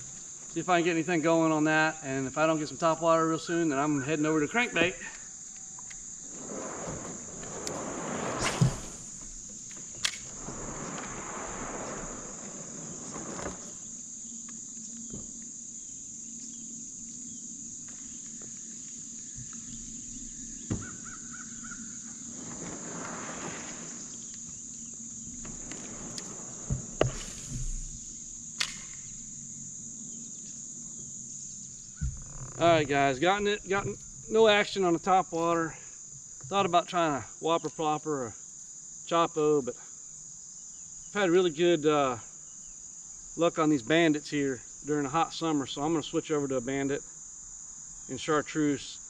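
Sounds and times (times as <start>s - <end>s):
high-pitched insect chorus: 0.0s - 49.0s
soft rushing noise: 6.2s - 9.3s, 10.2s - 13.8s.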